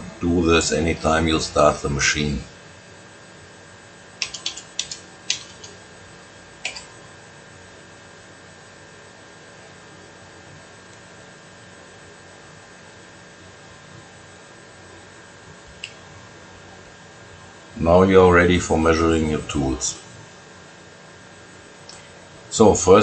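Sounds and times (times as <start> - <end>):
steady electrical hum: 0.0 - 23.0
keyboard keystroke clicks: 4.2 - 5.8, 6.6 - 6.9.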